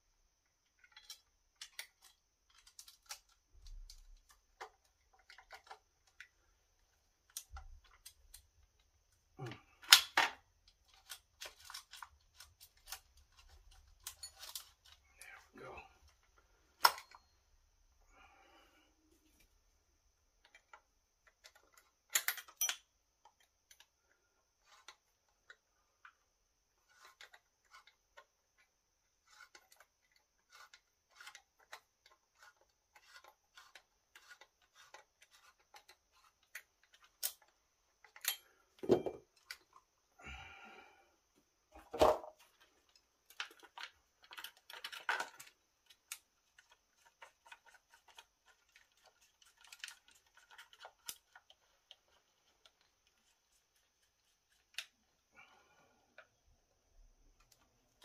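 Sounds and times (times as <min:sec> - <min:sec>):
small metallic clicks: 0:00.6 - 0:06.4.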